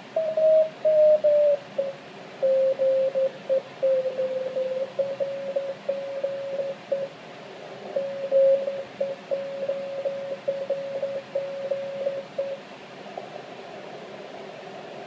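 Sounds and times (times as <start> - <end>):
faint radio hiss: 0.0 - 15.0
morse code tone: 3.9 - 7.1, 8.0 - 12.6.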